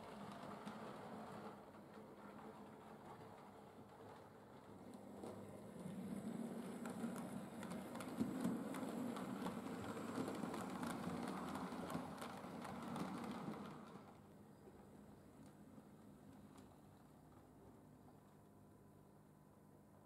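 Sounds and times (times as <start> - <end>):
train wheels clicking on track: 0.0 - 14.2.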